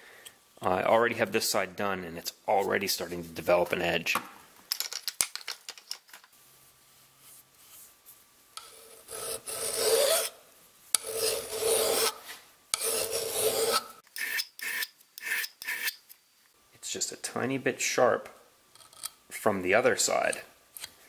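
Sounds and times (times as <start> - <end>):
hand file rasping on steel: 8.6 - 10.4, 11.0 - 12.2, 12.8 - 16.0.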